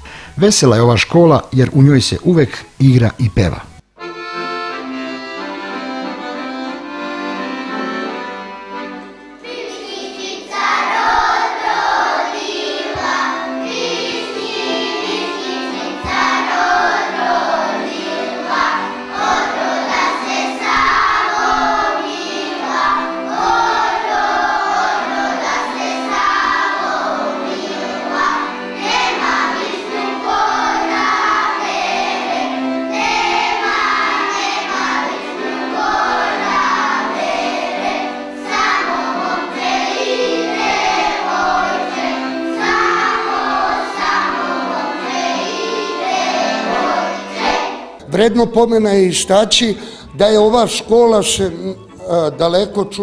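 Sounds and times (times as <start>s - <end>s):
accordion playing a tune: 0.0s - 53.0s
children singing: 9.4s - 48.0s.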